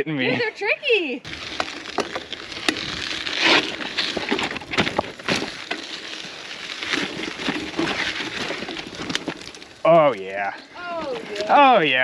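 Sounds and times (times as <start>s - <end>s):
tyres crunching on grit and rock: 1.2s - 12.0s
bike knocks and rattles: 1.3s - 9.7s.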